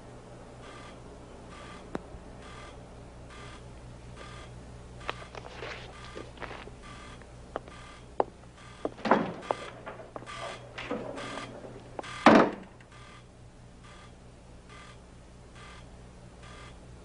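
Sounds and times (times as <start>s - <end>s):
footsteps: 5.0s - 12.1s
metal chair clatter: 8.9s - 12.7s.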